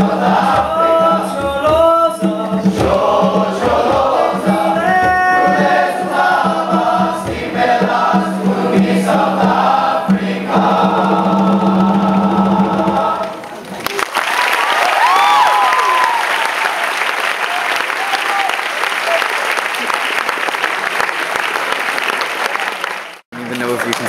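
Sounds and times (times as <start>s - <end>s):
boys' choir singing: 0.0s - 13.5s.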